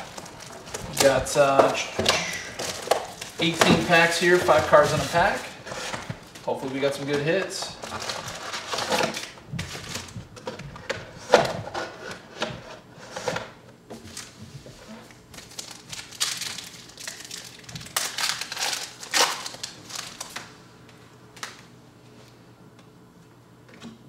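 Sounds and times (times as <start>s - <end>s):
card packs rustling and crinkling: 0.0s - 12.5s, 14.0s - 20.6s.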